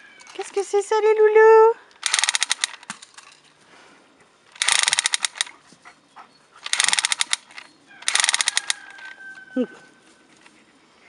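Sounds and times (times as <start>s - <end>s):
toy pistol rapid clicking: 2.0s - 2.9s, 4.5s - 5.5s, 6.6s - 9.1s.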